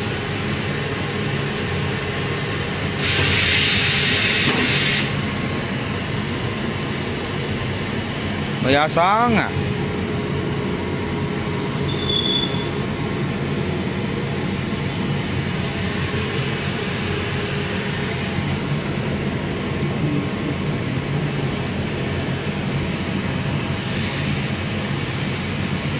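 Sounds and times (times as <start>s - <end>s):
welding machine hum and drone: 0.0s - 25.9s
short high tone: 11.9s - 12.8s.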